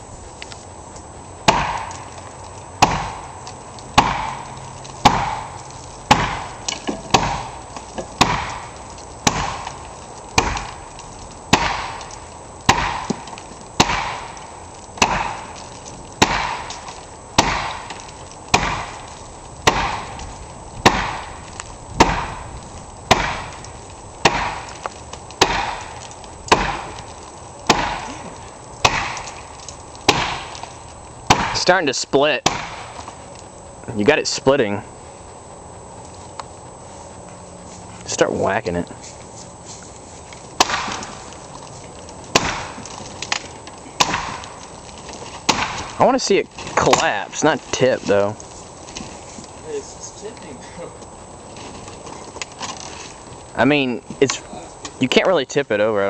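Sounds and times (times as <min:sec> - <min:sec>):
heavy tool striking wood: 0:01.5 - 0:02.1, 0:02.8 - 0:03.3, 0:04.0 - 0:04.4, 0:05.0 - 0:05.5, 0:06.1 - 0:09.7, 0:10.4 - 0:10.8, 0:11.5 - 0:12.0, 0:12.7 - 0:14.4, 0:15.0 - 0:15.6, 0:16.2 - 0:16.8, 0:17.4 - 0:19.0, 0:19.6 - 0:20.2, 0:20.8 - 0:21.4, 0:22.0 - 0:22.4, 0:23.1 - 0:23.6, 0:24.2 - 0:24.7, 0:25.4 - 0:27.0, 0:27.7 - 0:28.1, 0:28.8 - 0:29.5, 0:30.1 - 0:30.6, 0:31.3 - 0:31.7, 0:32.4 - 0:33.0, 0:40.6 - 0:41.2, 0:42.3 - 0:44.5, 0:45.4 - 0:47.2.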